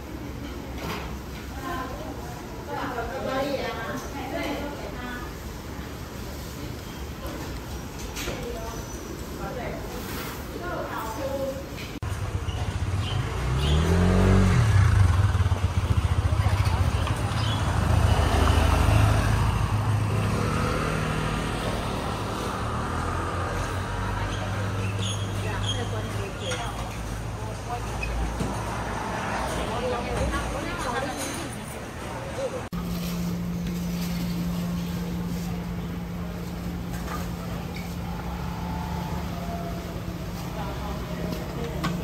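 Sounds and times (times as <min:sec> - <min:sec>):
vehicle engine running: 0:12.0 - 0:24.8.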